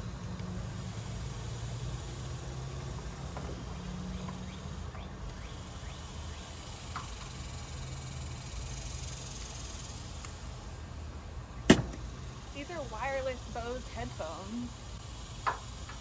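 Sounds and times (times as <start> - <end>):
low outdoor rumble: 0.0 - 16.0
faint high insect buzz: 0.4 - 10.8
sharp knock: 11.7 - 12.0.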